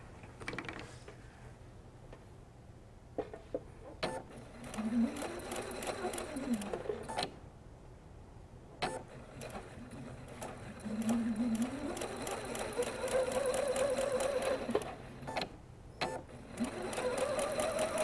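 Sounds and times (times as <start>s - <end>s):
sewing machine motor whine: 4.3s - 7.2s, 9.1s - 15.4s, 16.1s - 18.0s.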